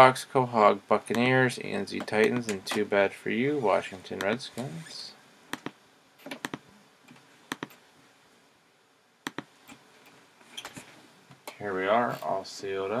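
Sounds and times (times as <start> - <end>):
laptop keys and mouse clicking: 5.5 - 7.8, 9.3 - 9.8.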